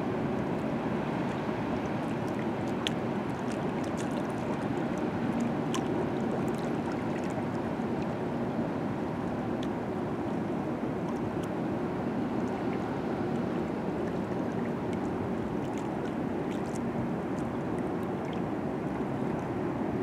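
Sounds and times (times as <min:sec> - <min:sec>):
small water splashes: 0:01.2 - 0:08.2, 0:12.4 - 0:19.5.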